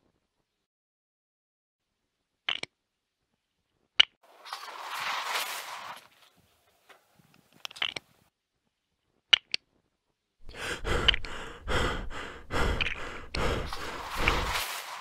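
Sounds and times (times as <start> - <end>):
heavy breathy huffing: 10.4 - 15.0.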